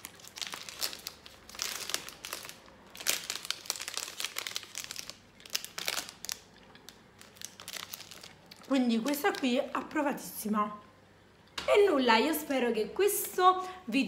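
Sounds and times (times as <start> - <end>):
foil wrapper crinkling: 0.0 - 9.9.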